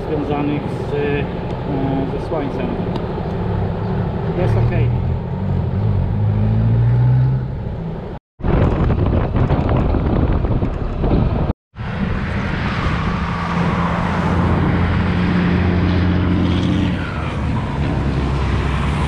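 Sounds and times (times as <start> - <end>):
wind rushing over microphone: 8.4 - 19.0.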